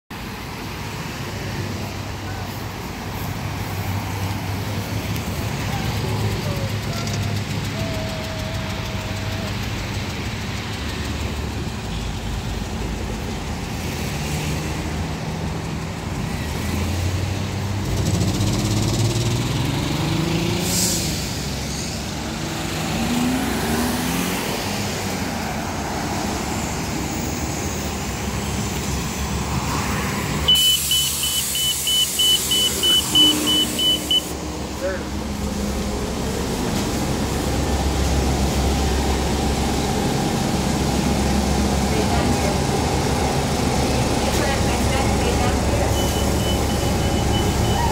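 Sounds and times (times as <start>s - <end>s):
bus engine accelerating: 0.1s - 47.9s
cars accelerating: 0.2s - 47.9s
high beeping from bus door: 30.5s - 34.3s, 45.8s - 47.9s.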